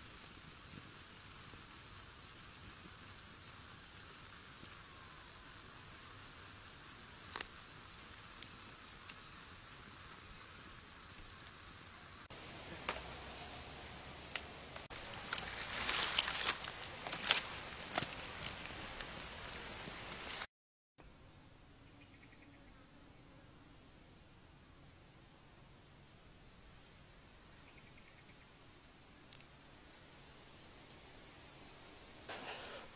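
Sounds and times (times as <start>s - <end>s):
insects droning: 0.0s - 12.5s.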